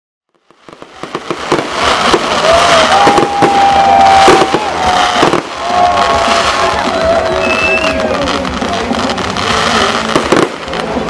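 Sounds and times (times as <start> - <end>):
fireworks bangs: 0.3 - 11.0
fireworks crackling and popping: 0.3 - 11.0.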